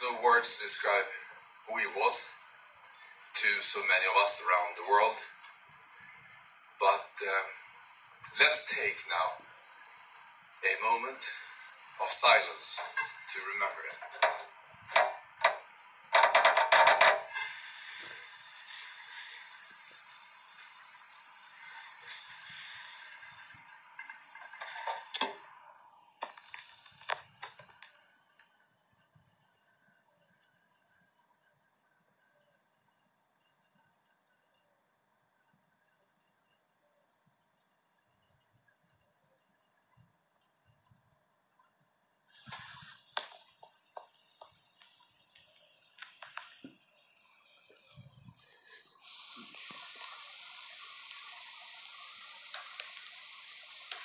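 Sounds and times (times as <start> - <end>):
steady hiss: 0.0 - 54.0
small clicks and knocks: 14.0 - 17.5, 26.2 - 28.6, 42.4 - 46.8.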